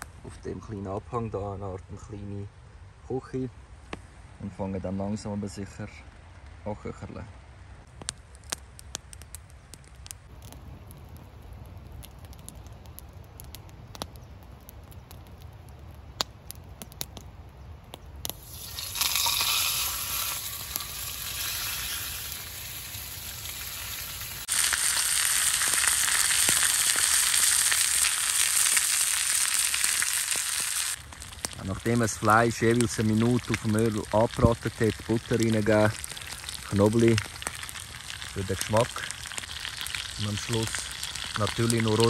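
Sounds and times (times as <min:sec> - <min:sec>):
campfire crackling and popping: 0:07.8 - 0:42.0
steak sizzling in hot oil: 0:18.3 - 0:42.0.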